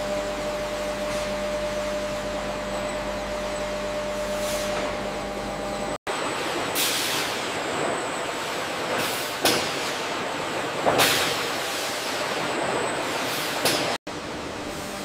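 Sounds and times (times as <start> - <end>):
conveyor lines running: 0.0 - 15.0.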